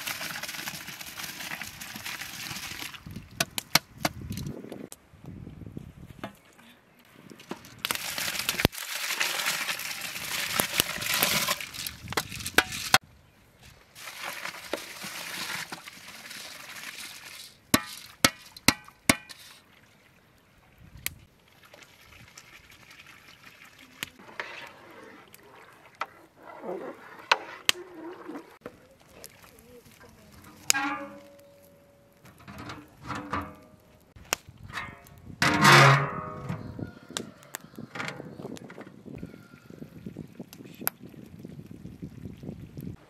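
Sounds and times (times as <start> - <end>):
rushing pouring noise: 0.0 - 3.2, 7.9 - 12.0, 14.0 - 17.6.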